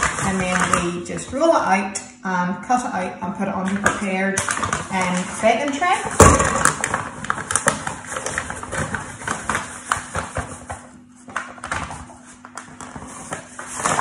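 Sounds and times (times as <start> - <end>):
paper bag crinkling: 3.6 - 14.0.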